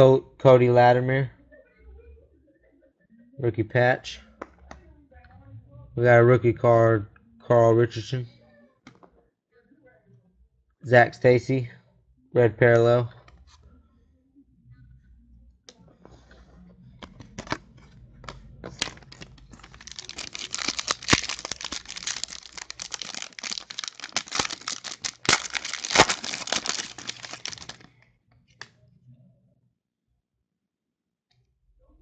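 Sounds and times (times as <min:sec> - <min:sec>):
trading cards clicking: 0:18.6 - 0:27.9
plastic wrapper tearing and crinkling: 0:18.6 - 0:28.0.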